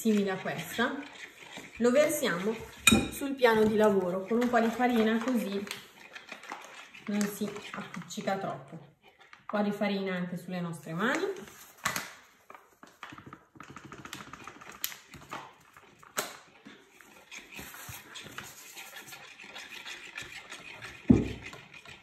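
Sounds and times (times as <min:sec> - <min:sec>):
fork scraping dough in bowl: 0:00.0 - 0:08.9, 0:16.7 - 0:22.0.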